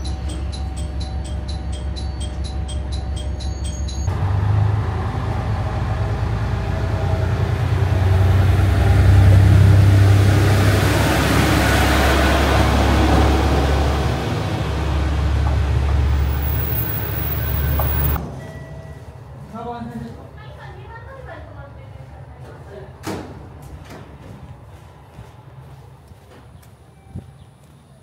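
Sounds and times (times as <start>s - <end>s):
diesel railcar engine and wheels: 0.0s - 28.0s
low hum: 4.1s - 18.2s
fast high ticking: 16.0s - 18.2s.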